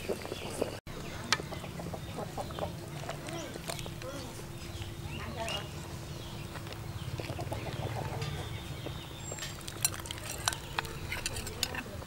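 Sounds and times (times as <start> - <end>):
clinks and splashes: 9.3 - 12.0
ladle stirring in a metal pot: 9.3 - 12.0.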